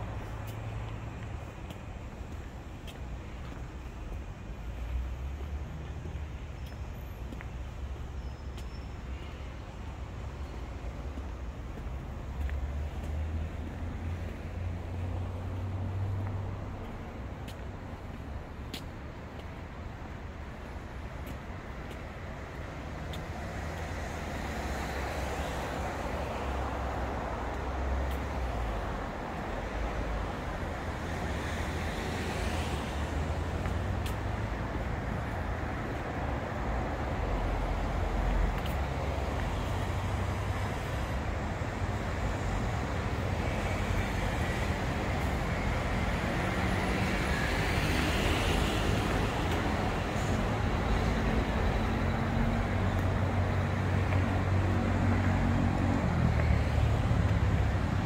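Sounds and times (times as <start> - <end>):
road traffic rumble: 0.0 - 58.0.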